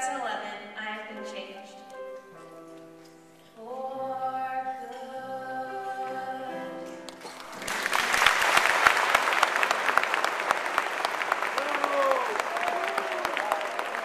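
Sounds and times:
audience applause: 0:07.2 - 0:14.0.

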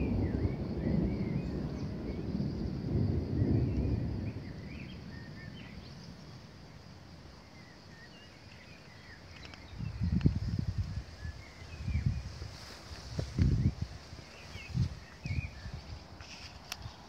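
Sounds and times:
wind buffeting microphone: 0:00.0 - 0:06.9, 0:08.8 - 0:17.0
distant thunder rumbling: 0:00.0 - 0:08.0
birds chirping: 0:00.0 - 0:17.0.

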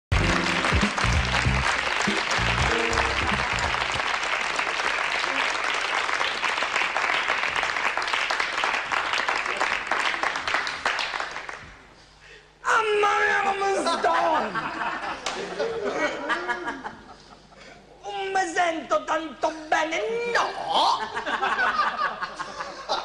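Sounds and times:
music with low bass notes: 0:00.1 - 0:04.0
audience applauding: 0:00.1 - 0:11.6.

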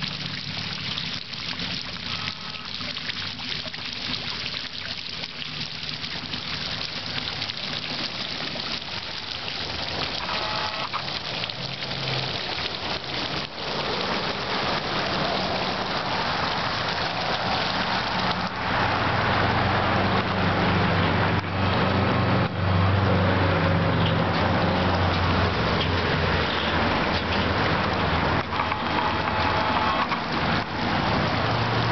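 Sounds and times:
fountain splashing into basin: 0:00.0 - 0:31.9
vehicle engine hum: 0:14.0 - 0:31.9.

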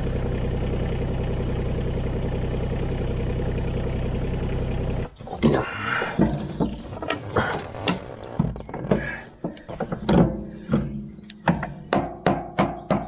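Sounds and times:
hand tools clanking on metal: 0:05.9 - 0:13.0.

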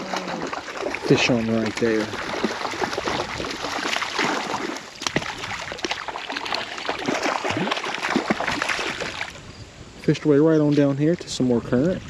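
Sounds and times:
fish splashing at surface: 0:00.0 - 0:09.4
running water rushing: 0:00.0 - 0:09.4.

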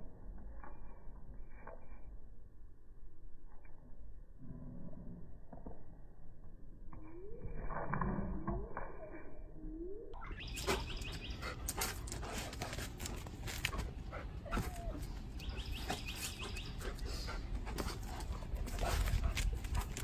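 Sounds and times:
bird trilling: 0:10.1 - 0:11.4
dog: 0:10.6 - 0:20.0.

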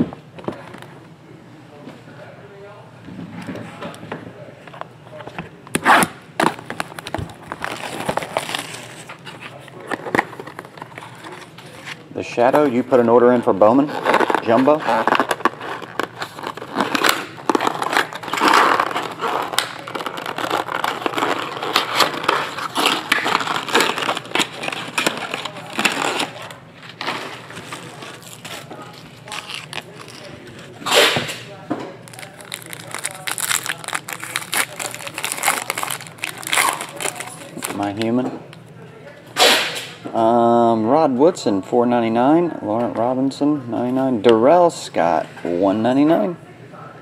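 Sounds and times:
cardboard and plastic tearing: 0:05.7 - 0:12.1, 0:13.6 - 0:31.4, 0:32.1 - 0:38.0
packaging rustling: 0:05.9 - 0:12.1, 0:13.6 - 0:30.8, 0:32.0 - 0:38.1.

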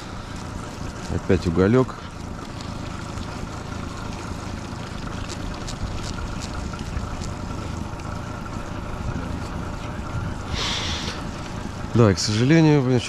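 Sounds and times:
outboard motor running: 0:00.0 - 0:13.0
water noise: 0:00.0 - 0:13.0
wind: 0:00.0 - 0:13.0.

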